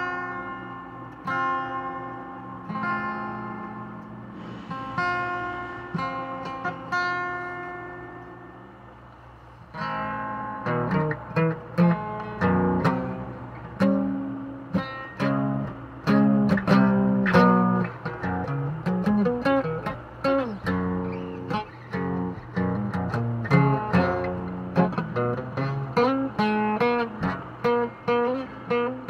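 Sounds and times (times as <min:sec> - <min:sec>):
acoustic guitar playing: 0:00.0 - 0:29.0.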